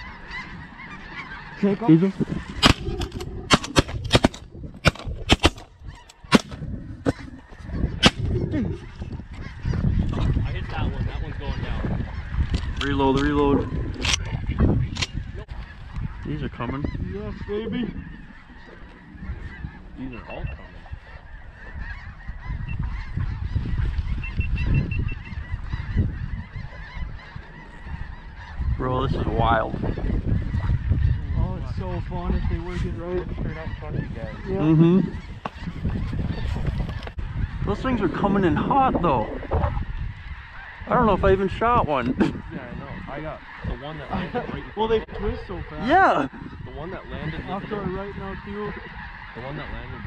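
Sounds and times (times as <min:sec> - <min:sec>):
geese calling: 0:00.0 - 0:50.0
wind gusting on microphone: 0:00.0 - 0:50.0
shotgun blasts: 0:02.6 - 0:05.6, 0:06.3 - 0:06.6.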